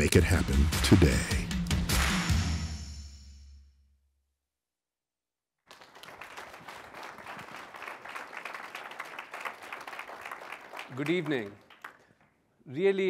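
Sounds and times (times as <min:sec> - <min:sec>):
audience applause: 0:05.7 - 0:12.2.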